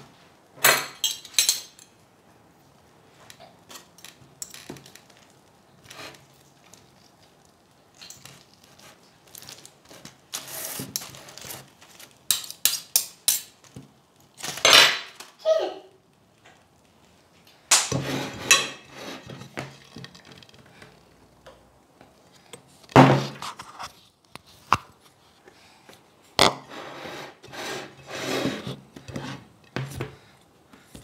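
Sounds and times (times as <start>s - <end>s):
utensils scraping and rubbing: 9.9s - 11.7s, 17.9s - 20.6s, 26.5s - 29.6s
metal utensils clattering on plate: 18.0s - 20.4s.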